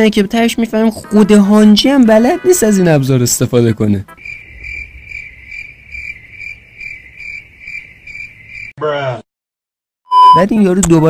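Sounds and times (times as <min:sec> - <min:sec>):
crickets chirping: 0:04.1 - 0:08.7.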